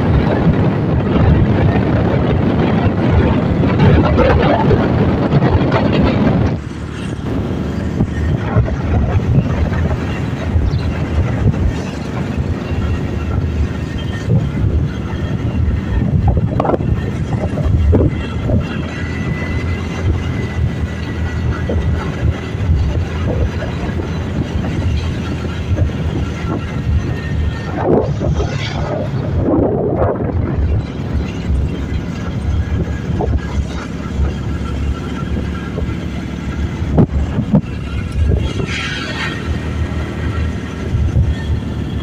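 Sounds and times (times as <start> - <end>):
motorcycle engine rumble: 0.0 - 42.0
rushing air: 0.0 - 42.0.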